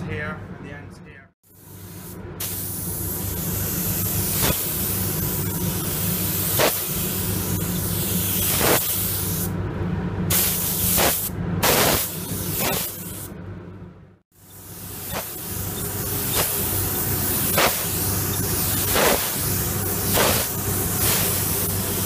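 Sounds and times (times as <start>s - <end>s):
paint spray gun hissing: 1.5s - 9.5s, 10.3s - 13.3s, 14.4s - 22.0s.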